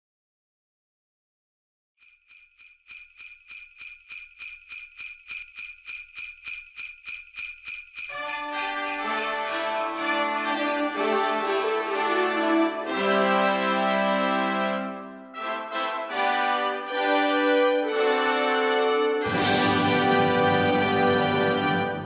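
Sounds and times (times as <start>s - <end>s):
sleigh bells jingling: 2.0s - 14.4s
christmas music with sustained notes: 8.1s - 22.0s.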